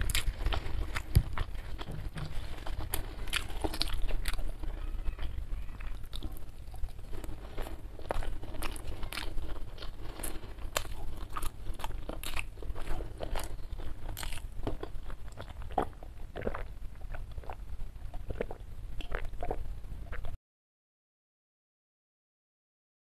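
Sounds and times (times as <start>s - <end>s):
person chewing and swallowing: 0.0s - 20.4s
person gulping water: 18.2s - 20.4s.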